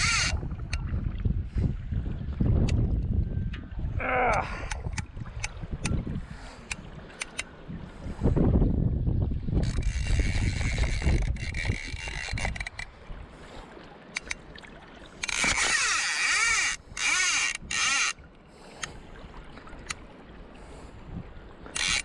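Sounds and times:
fly reel drag buzzing: 0.0 - 0.4, 9.6 - 12.8, 15.2 - 18.2, 21.8 - 22.0
fly reel single clicks: 0.0 - 0.8, 6.6 - 7.5, 14.1 - 14.4, 15.2 - 19.0, 21.7 - 22.0.

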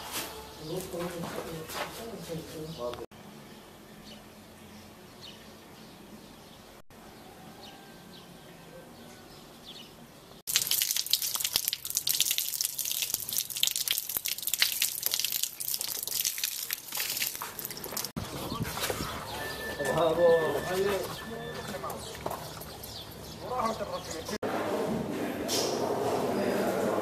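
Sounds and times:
water splashing onto concrete: 10.5 - 18.2.

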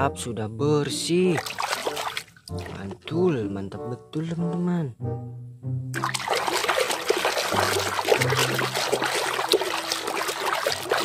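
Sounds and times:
water sloshing in a tub: 1.3 - 3.2, 6.0 - 11.0.

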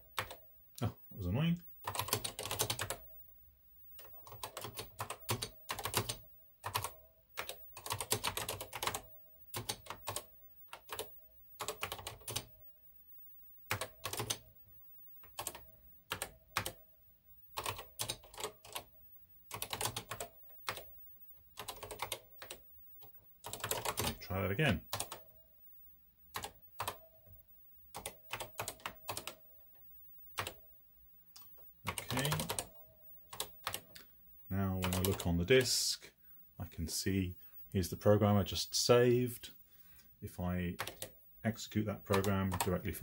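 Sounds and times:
keyboard typing clicks: 1.8 - 3.0, 4.0 - 12.5, 13.7 - 14.5, 15.2 - 16.8, 17.6 - 18.9, 19.5 - 20.9, 21.6 - 24.2, 24.8 - 25.3, 26.3 - 27.1, 27.9 - 29.8, 30.4 - 30.6, 31.3 - 34.1, 34.8 - 35.3, 40.8 - 41.2, 42.1 - 42.8.

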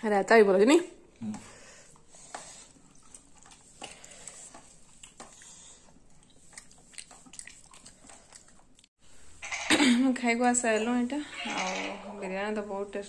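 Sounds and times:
soft chewing: 1.2 - 9.0.

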